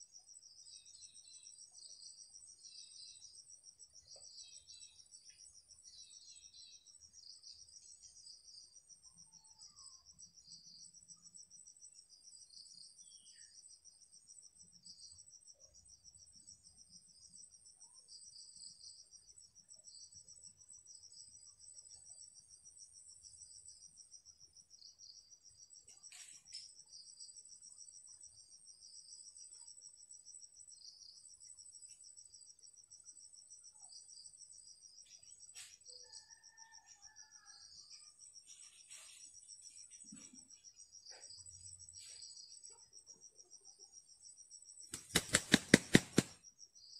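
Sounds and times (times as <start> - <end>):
insects trilling: 21.8 - 46.9.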